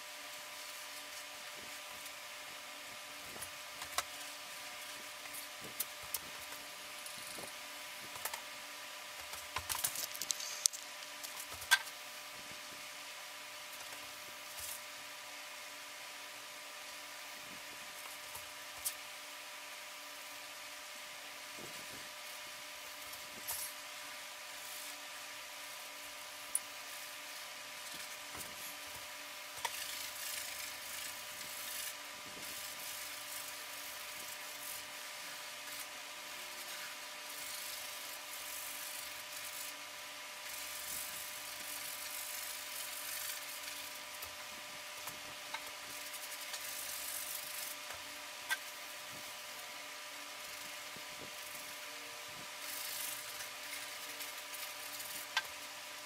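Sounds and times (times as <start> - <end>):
faint electrical whine: 0.0 - 56.0
paintbrush rubbing on canvas: 24.4 - 44.3.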